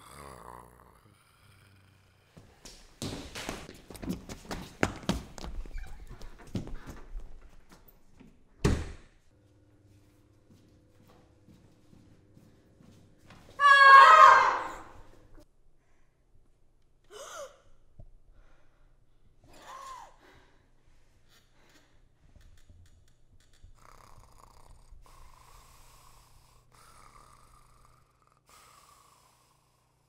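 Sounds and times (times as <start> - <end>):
slow raspy breathing: 0.0 - 2.6, 23.8 - 30.0.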